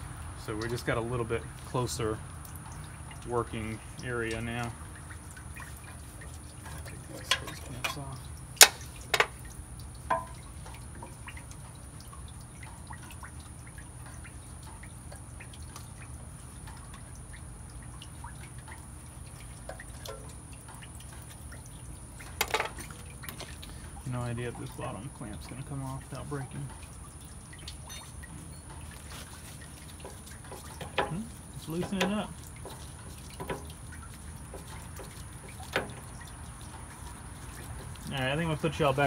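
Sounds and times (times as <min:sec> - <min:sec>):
tools clinking on metal: 0:27.8 - 0:28.7.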